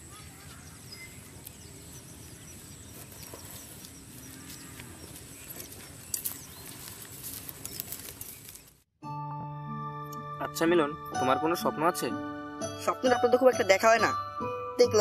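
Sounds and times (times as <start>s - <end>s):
bird chirps: 0.0s - 7.0s
footsteps on dry grass: 0.0s - 8.9s.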